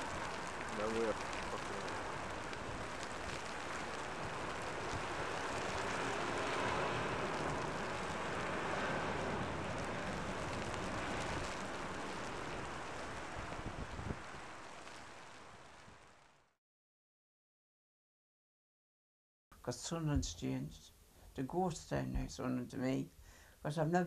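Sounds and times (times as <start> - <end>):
road traffic noise: 0.0 - 14.9.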